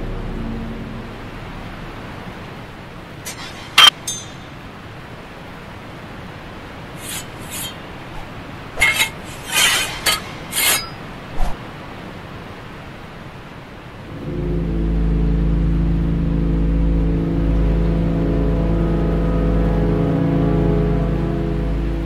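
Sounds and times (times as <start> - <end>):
steady background hiss: 0.0 - 22.0
blades scraping: 3.3 - 4.6, 7.0 - 11.6
steel blades clashing: 3.3 - 4.6, 7.0 - 11.6.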